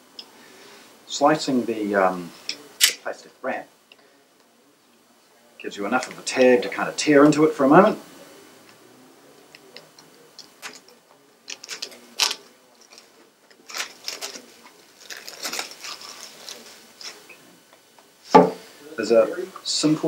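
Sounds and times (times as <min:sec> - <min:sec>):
plastic wrap crinkling and tearing: 0:10.6 - 0:17.2.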